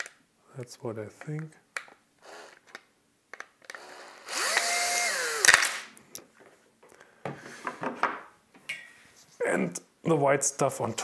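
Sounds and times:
plastic parts clicking and rattling: 1.2 - 3.8, 5.3 - 5.9
cordless drill motor whining: 3.7 - 5.8
drill stopping click: 3.8 - 5.8.

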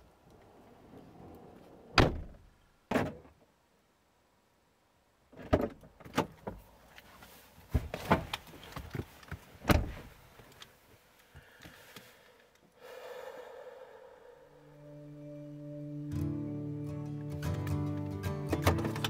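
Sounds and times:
knocks and clunks: 1.9 - 3.4, 5.3 - 6.6
car door shutting: 9.6 - 10.1.

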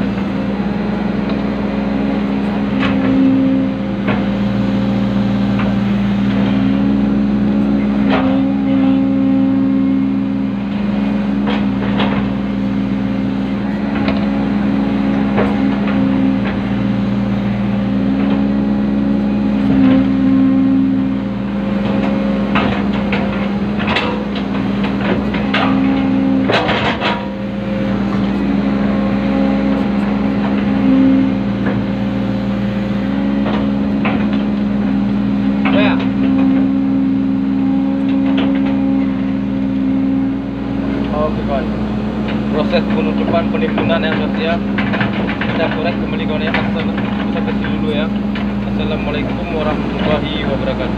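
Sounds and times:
excavator diesel engine hum: 0.0 - 50.9
knocks and rattles: 21.8 - 28.7, 42.2 - 50.9.

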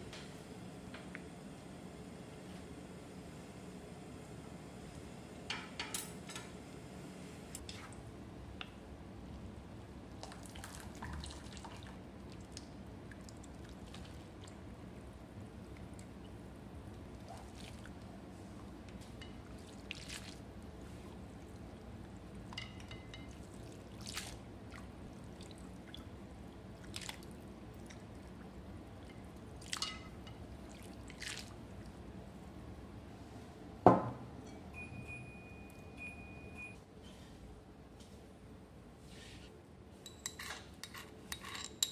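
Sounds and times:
dishes and utensils clinking: 40.0 - 41.9.

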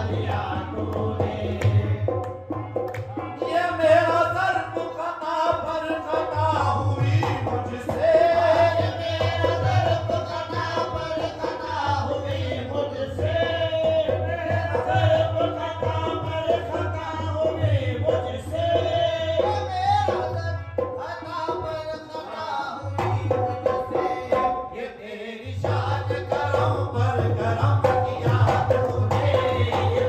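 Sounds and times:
hand drum: 0.0 - 21.9, 25.7 - 30.0
people singing: 0.0 - 30.0
hand-clapping: 1.6 - 3.2.

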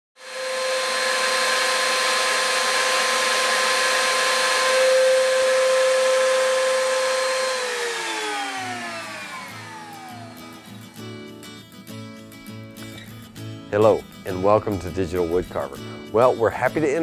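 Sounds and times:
hiss of cutting wood: 0.2 - 11.0
router high whine: 0.2 - 11.0.

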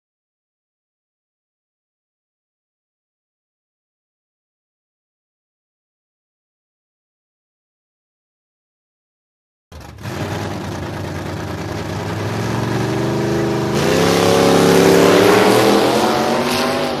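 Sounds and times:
car engine revving: 9.7 - 17.0.

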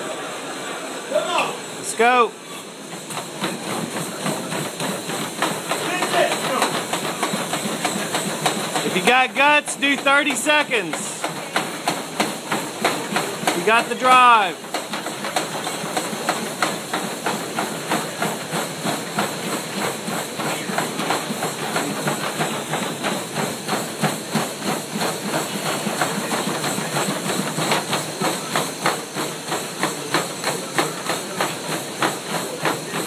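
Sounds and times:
treadmills whirring: 0.0 - 33.0
footfalls on treadmill belts: 2.9 - 33.0.

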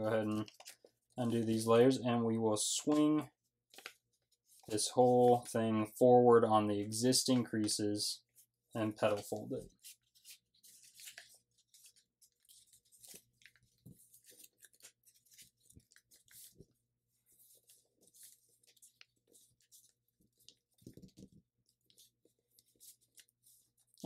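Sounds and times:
paper crinkling and rustling: 0.0 - 2.0, 2.6 - 5.6, 7.3 - 24.0
small paper crackles: 0.1 - 1.5, 2.8 - 5.5, 9.0 - 24.0.

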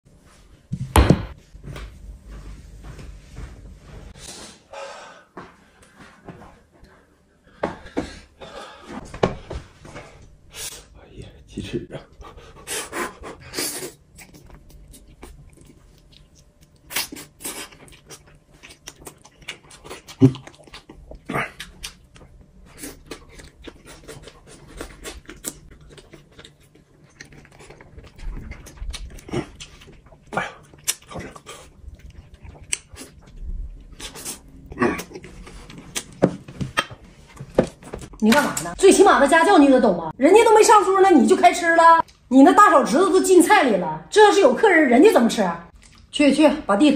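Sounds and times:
wet chewing and lip-smacking: 13.2 - 37.0, 45.7 - 46.1.

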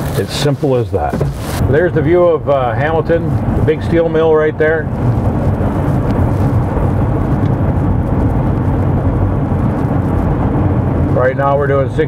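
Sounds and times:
road and engine noise: 0.0 - 12.0.

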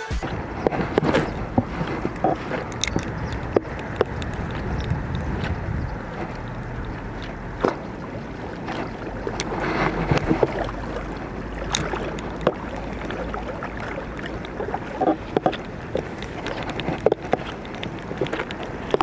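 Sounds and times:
wind buffeting microphone: 0.2 - 19.0
small clicks and knocks: 0.6 - 5.5, 14.3 - 19.0.

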